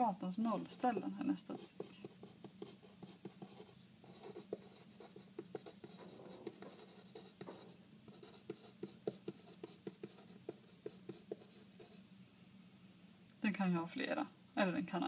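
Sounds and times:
pen writing on paper: 1.6 - 12.0.

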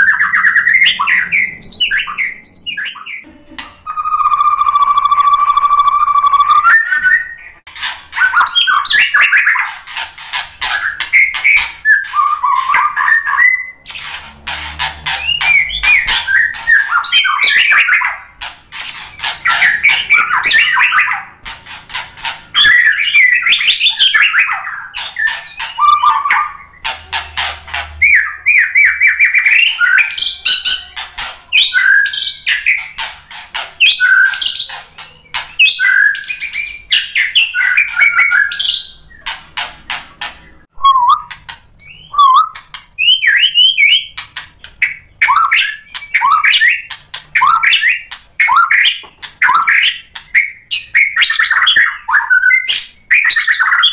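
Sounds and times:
songbird singing whistled phrases: 0.0 - 7.6, 8.2 - 9.7, 10.7 - 14.1, 15.2 - 21.3, 22.6 - 26.9, 28.0 - 32.9, 33.8 - 39.3, 40.8 - 44.2, 44.8 - 53.9
bird clicking and chattering: 13.9 - 28.1.

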